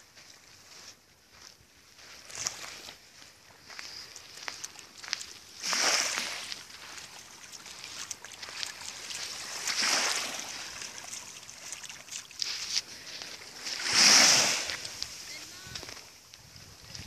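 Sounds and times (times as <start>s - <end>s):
small waves washing in: 5.5s - 16.2s
dog splashing in water: 5.6s - 12.8s.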